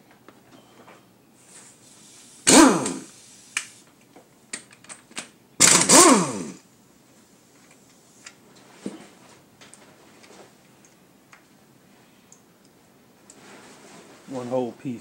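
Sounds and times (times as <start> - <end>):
power tool motor winding down: 2.5 - 3.1, 5.6 - 6.6
sharp tool clicks: 5.6 - 6.5.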